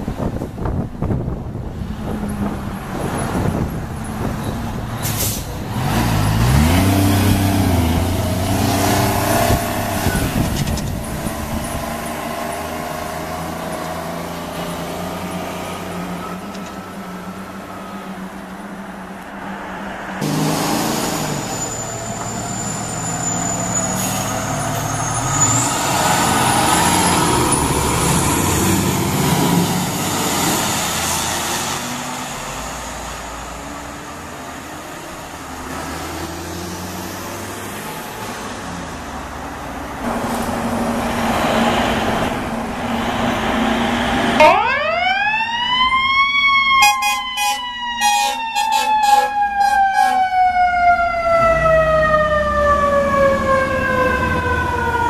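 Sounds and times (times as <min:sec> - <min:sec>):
siren wailing: 0:44.3 - 0:55.0
short horn blasts: 0:46.8 - 0:50.2.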